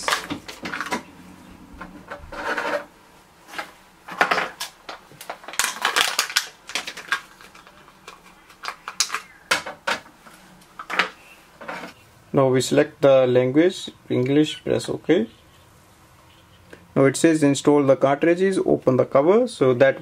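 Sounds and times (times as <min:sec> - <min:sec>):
plastic packaging crinkling: 0:04.2 - 0:09.5.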